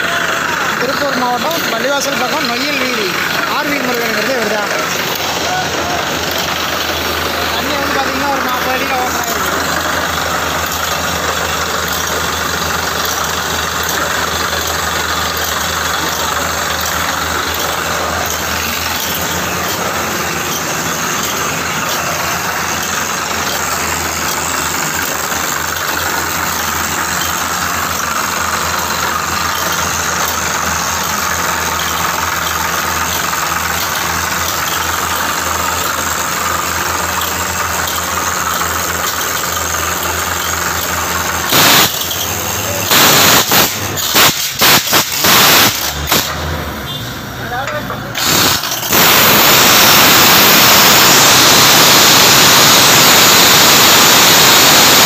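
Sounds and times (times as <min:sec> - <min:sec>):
drilling rig running: 0:00.0 - 0:55.0.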